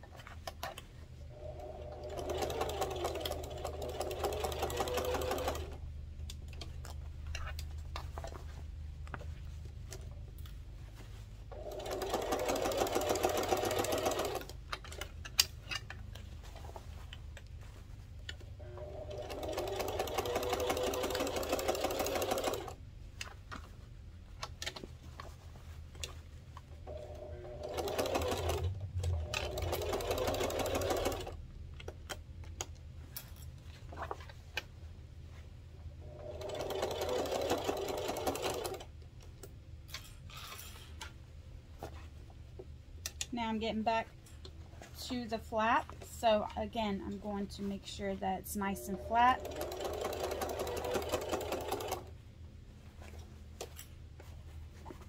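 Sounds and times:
sewing machine stitching: 0:01.3 - 0:05.8, 0:11.6 - 0:15.1, 0:18.6 - 0:22.8, 0:26.9 - 0:31.4, 0:36.0 - 0:38.9, 0:48.6 - 0:52.1.

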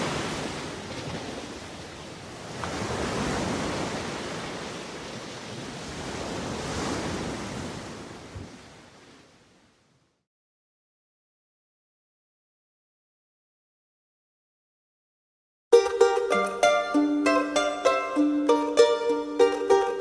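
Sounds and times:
sea surf rushing: 0:00.0 - 0:09.6.

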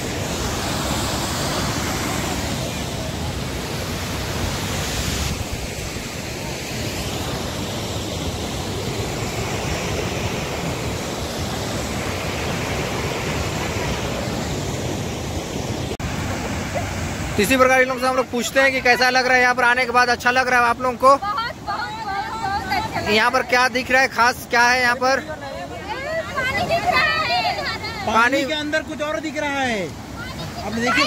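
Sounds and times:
waterfall rushing over rocks: 0:00.0 - 0:31.0.

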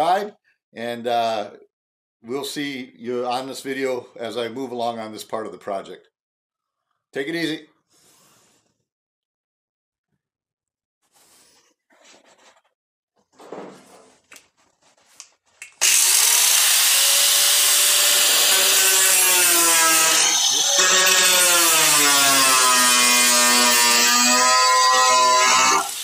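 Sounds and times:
angle grinder cutting metal: 0:15.8 - 0:26.0.

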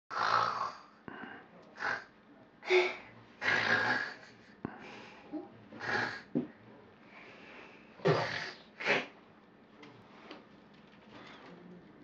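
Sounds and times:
toy bear snoring: 0:00.1 - 0:00.9, 0:01.8 - 0:02.1, 0:03.4 - 0:04.3, 0:05.8 - 0:06.4, 0:08.1 - 0:09.0.

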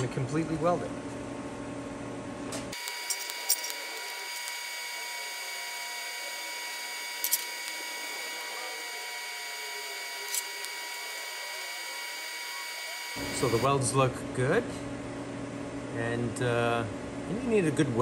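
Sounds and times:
welding arc hissing: 0:02.7 - 0:13.7.

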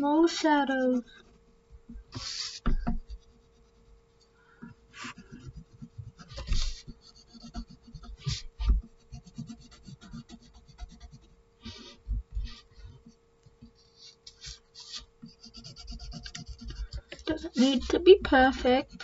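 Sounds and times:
pencil scratching on paper: 0:00.0 - 0:01.5, 0:02.2 - 0:04.1, 0:05.0 - 0:19.0
low bumps on paper: 0:01.1 - 0:03.3, 0:05.2 - 0:09.6.

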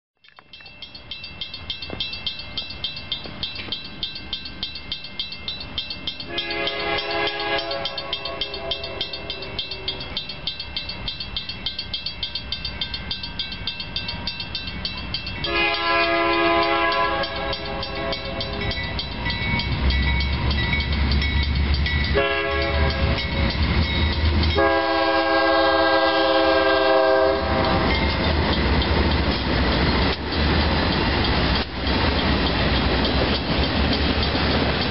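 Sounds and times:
crossing bell ringing: 0:00.2 - 0:34.9
diesel locomotive engine rumble: 0:00.2 - 0:34.9
train air horn: 0:06.3 - 0:09.4, 0:15.5 - 0:18.7, 0:22.2 - 0:23.2, 0:24.6 - 0:27.8.

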